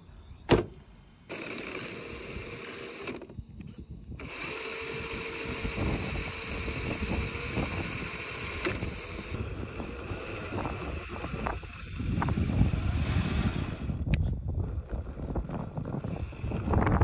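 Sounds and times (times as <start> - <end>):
toy truck electric motor whining: 1.3 - 17.0
wind buffeting microphone: 2.1 - 17.0.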